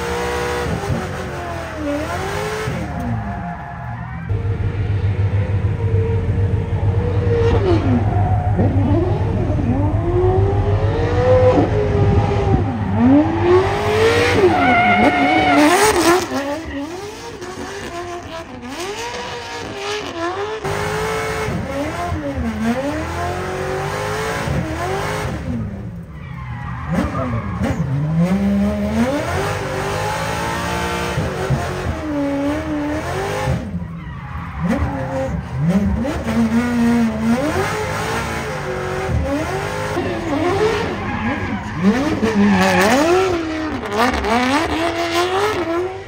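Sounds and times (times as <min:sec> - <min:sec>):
car engine revving: 0:00.0 - 0:46.0
tyre squeal: 0:13.0 - 0:17.7, 0:40.0 - 0:45.0.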